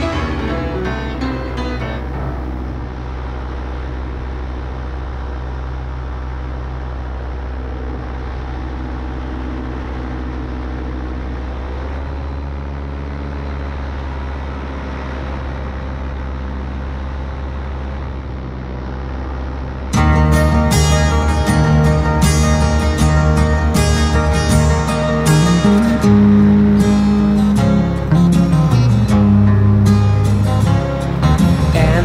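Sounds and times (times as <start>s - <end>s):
paramotor engine droning: 0.0s - 32.0s.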